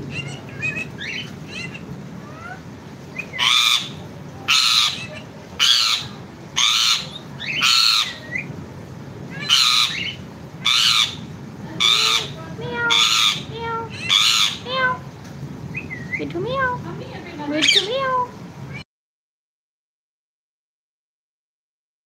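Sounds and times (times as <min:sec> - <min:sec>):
parakeet chirping: 0:00.0 - 0:08.5, 0:09.3 - 0:15.0, 0:15.7 - 0:16.8, 0:17.5 - 0:18.8
parakeet squawking harshly: 0:00.1 - 0:08.5, 0:09.3 - 0:15.0, 0:17.6 - 0:18.8.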